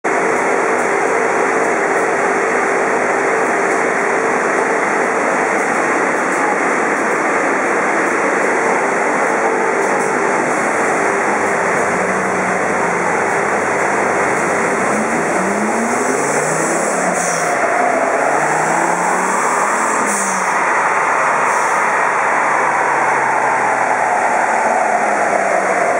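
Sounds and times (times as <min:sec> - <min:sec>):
loud cooling fan roar: 0:00.1 - 0:25.9.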